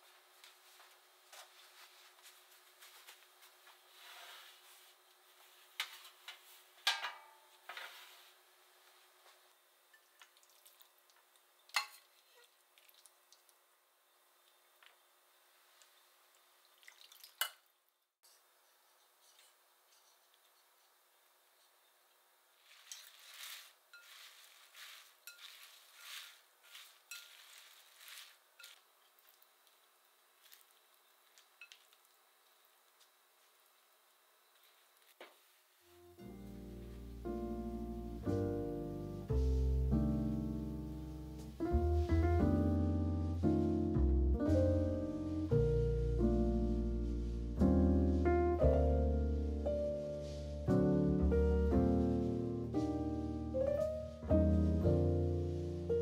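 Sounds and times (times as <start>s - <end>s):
wet salad leaves rustling: 10.0s - 13.8s, 22.4s - 35.7s, 36.4s - 43.8s, 44.5s - 56.0s.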